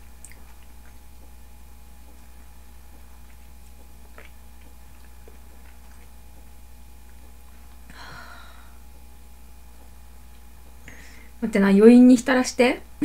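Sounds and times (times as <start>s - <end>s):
chewing and mouth clicks: 0.0s - 7.9s
low room hum: 0.0s - 13.0s
voiced breath or sigh: 7.9s - 8.8s.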